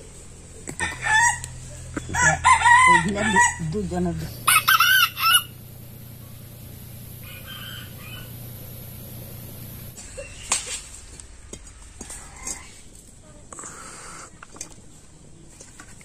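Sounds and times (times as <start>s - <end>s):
rooster crowing: 0.7s - 3.8s, 4.4s - 5.6s, 7.1s - 8.7s.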